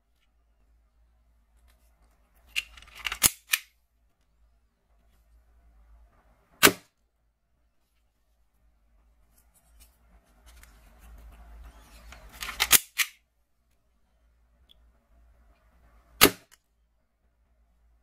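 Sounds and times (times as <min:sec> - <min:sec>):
loud plastic clicks: 0:02.5 - 0:03.8, 0:12.1 - 0:13.2.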